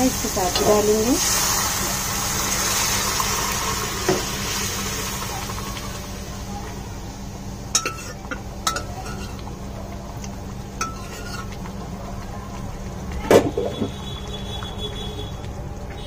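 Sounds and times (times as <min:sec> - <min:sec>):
metal spoon clinking on pot: 0:07.8 - 0:09.4, 0:10.8 - 0:11.5.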